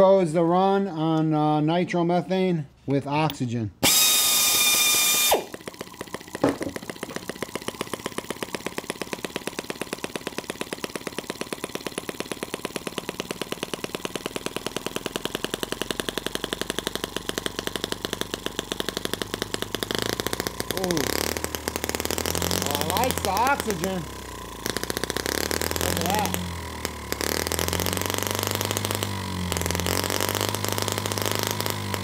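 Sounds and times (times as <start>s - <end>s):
small engine exhaust pops: 3.3s - 32.0s
cordless drill whining: 3.8s - 10.0s, 18.6s - 32.0s.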